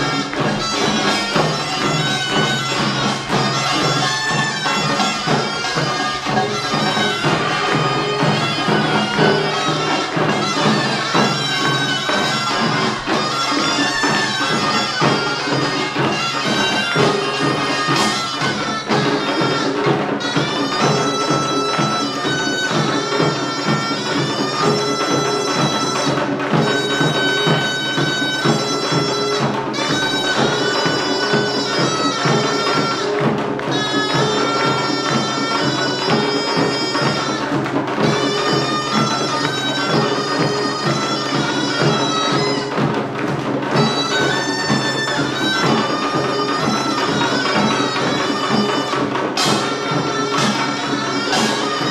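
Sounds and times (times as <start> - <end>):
drums and gongs beat: 0.0 - 51.9
nasal reed melody: 0.0 - 51.9.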